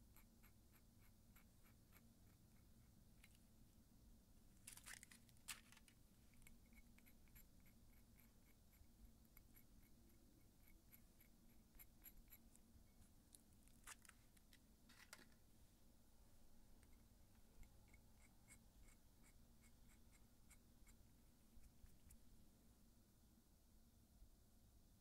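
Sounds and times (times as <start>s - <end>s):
foil crinkling: 4.6s - 5.9s.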